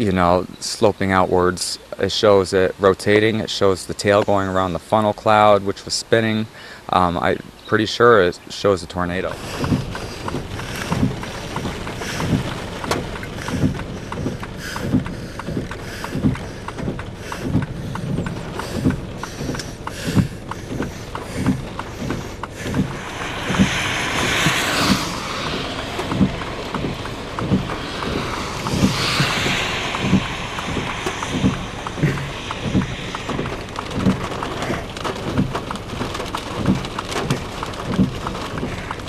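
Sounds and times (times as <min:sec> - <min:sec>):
wind blowing across microphone: 0:17.2 - 0:36.8
regular low thump: 0:18.8 - 0:35.5.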